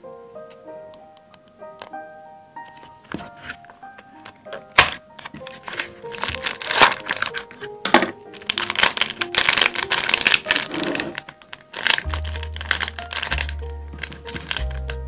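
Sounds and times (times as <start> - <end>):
background music: 0.0 - 15.0
slime clicking and crackling: 4.7 - 15.0.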